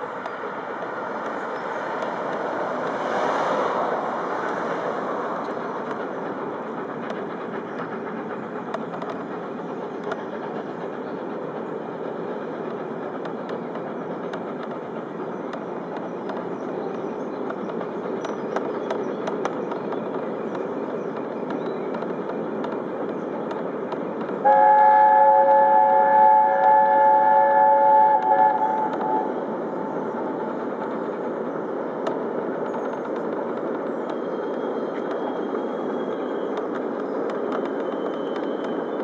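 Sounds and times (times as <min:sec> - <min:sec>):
steam train rumbling over bridge: 0:00.0 - 0:39.0
locomotive chime whistle: 0:24.4 - 0:29.4, 0:37.7 - 0:39.0.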